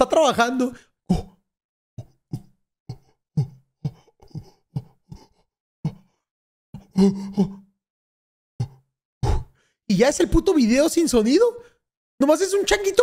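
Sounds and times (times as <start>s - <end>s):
man's breathy vocal sounds: 2.0s - 7.7s, 8.6s - 9.8s.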